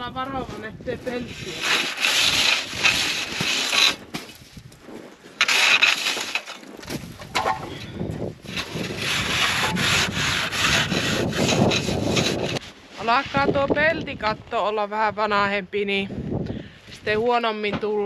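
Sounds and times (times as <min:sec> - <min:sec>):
saw rasping through packed snow: 0:01.0 - 0:04.1, 0:04.9 - 0:07.1, 0:08.4 - 0:12.8.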